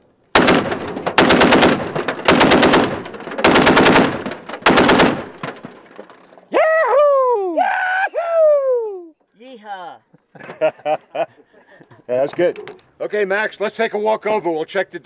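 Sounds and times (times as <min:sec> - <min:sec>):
machine gun bursts: 0:00.4 - 0:05.8
man yelling: 0:06.5 - 0:09.1.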